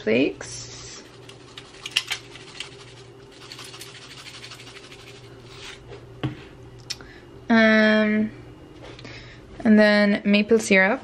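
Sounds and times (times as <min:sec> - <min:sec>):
faint steady hum: 0:00.0 - 0:11.0
spice shaker rattling: 0:01.0 - 0:05.8.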